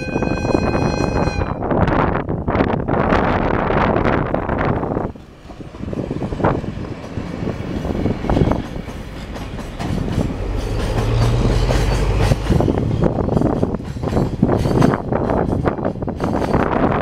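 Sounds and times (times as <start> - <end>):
freight train rolling past: 0.0 - 17.0
wheels clicking over rail joints: 5.1 - 17.0.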